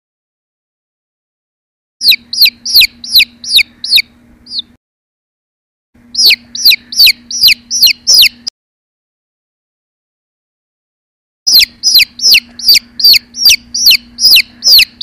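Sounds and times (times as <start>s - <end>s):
chick peeping: 2.0s - 4.8s, 6.1s - 8.5s, 11.5s - 15.0s
faint steady hum: 2.0s - 4.8s, 6.0s - 8.5s, 11.5s - 15.0s.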